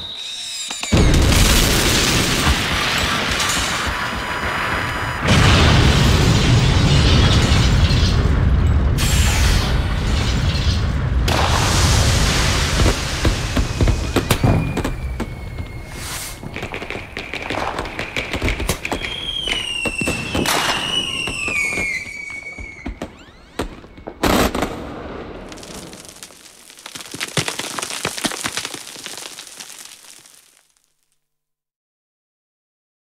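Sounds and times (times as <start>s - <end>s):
thin whistling tone: 0.0s - 1.0s, 14.0s - 17.1s, 18.9s - 24.2s
sharp cracks and bangs: 0.0s - 30.8s
loud blast: 0.8s - 29.9s.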